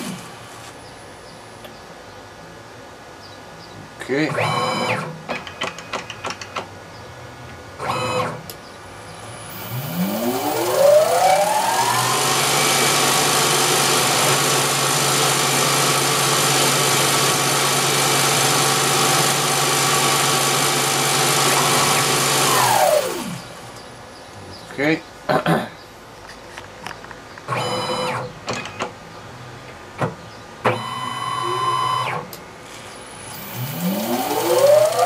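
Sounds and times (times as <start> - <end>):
lathe spindle motor whine: 9.4 - 23.7, 33.0 - 35.0.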